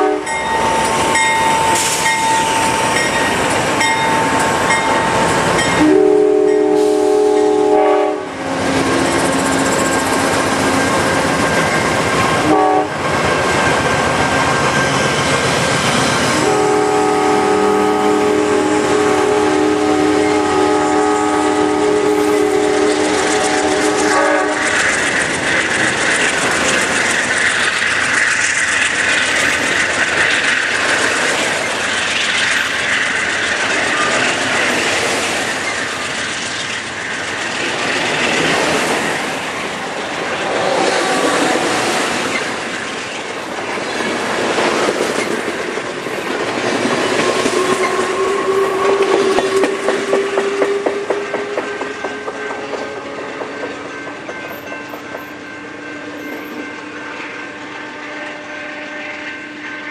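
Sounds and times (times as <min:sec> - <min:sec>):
train horn chord: 0:00.0 - 0:02.2, 0:05.7 - 0:09.0, 0:12.4 - 0:13.0, 0:16.4 - 0:24.7, 0:47.4 - 0:53.7, 0:55.7 - 0:59.9
high ringing hiss from wheels: 0:00.0 - 0:07.8
train cars rumbling and clattering: 0:00.0 - 0:59.9.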